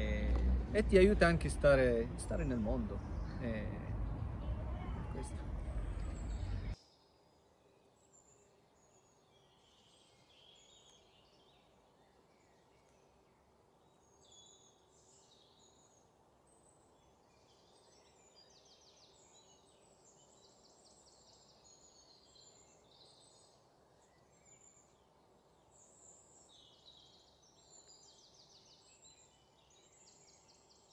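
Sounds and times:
steady low hiss: 0.0s - 18.3s
faint birdsong: 0.0s - 30.9s.

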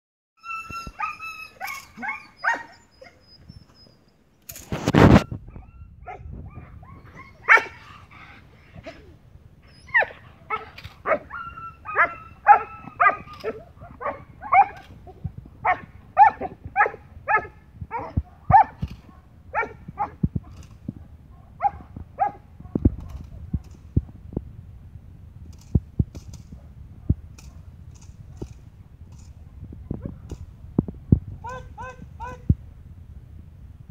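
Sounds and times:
dog barking: 7.4s - 7.8s, 10.0s - 11.3s, 11.9s - 14.8s, 15.6s - 20.2s, 21.3s - 23.7s, 31.4s - 32.4s.

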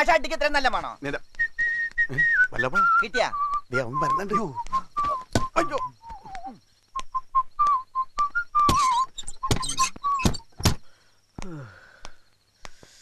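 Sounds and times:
whistling in short notes: 1.4s - 10.5s
breathy bursts: 10.8s - 13.0s.

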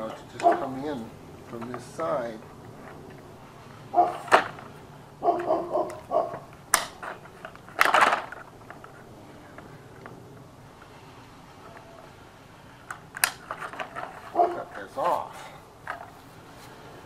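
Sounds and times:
tin snips cutting siding: 5.3s - 8.3s, 12.8s - 15.2s.

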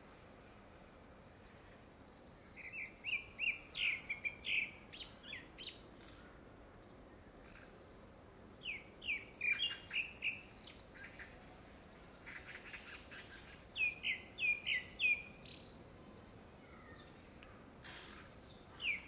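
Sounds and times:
thrush singing whistles: 2.6s - 5.5s, 13.8s - 15.8s.

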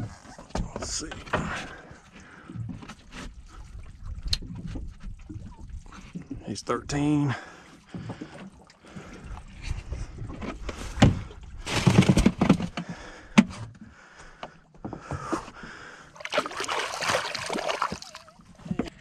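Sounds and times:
fish knocking and scraping on deck: 10.4s - 13.7s
water splashing: 16.2s - 18.8s.

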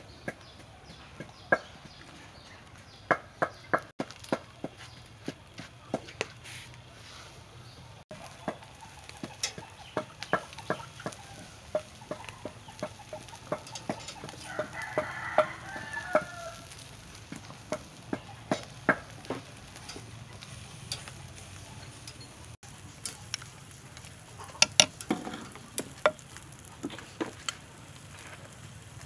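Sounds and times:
tongs tapping on grill grate: 8.1s - 28.4s.

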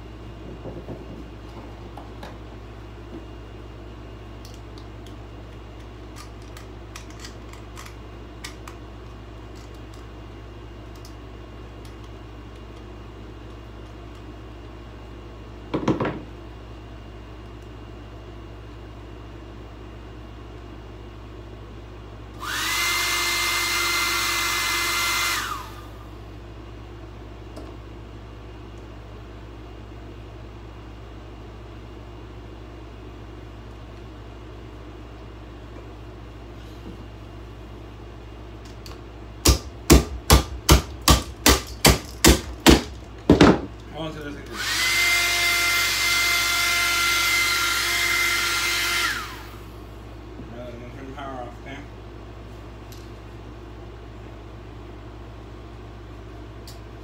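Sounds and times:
hard blows on hair dryer: 22.4s - 26.1s, 44.5s - 49.7s
hair dryer running: 22.4s - 26.2s, 44.5s - 49.8s.

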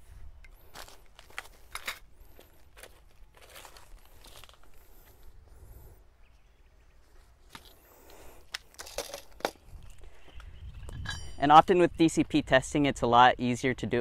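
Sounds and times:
rustling on dry leaf litter: 0.0s - 5.8s.

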